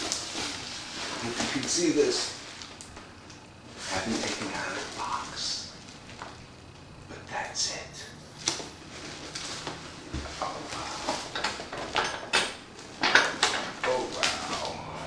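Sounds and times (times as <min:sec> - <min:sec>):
bubble wrap crinkling: 0:00.0 - 0:06.5, 0:08.4 - 0:11.9, 0:13.8 - 0:14.9.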